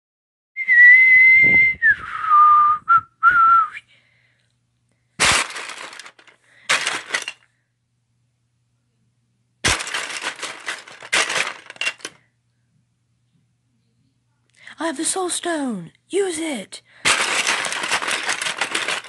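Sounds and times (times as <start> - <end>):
harsh crashing bursts: 5.2 - 7.4, 9.6 - 12.1, 17.0 - 19.0.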